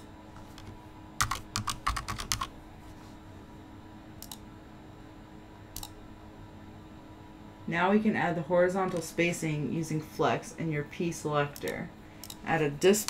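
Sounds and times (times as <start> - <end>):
keyboard keystrokes: 0.5 - 2.5.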